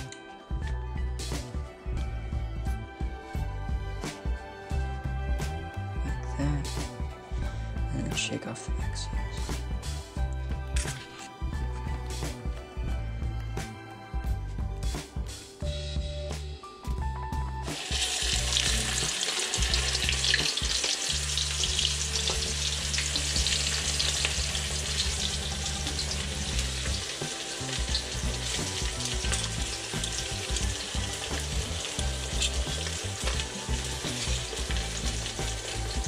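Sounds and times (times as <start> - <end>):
fish sizzling in hot oil: 17.6 - 36.0.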